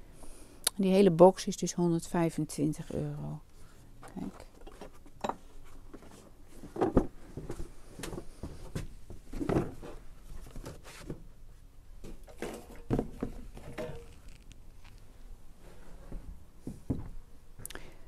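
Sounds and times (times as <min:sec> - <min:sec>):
cardboard box knocks and rustles: 0:06.6 - 0:11.2.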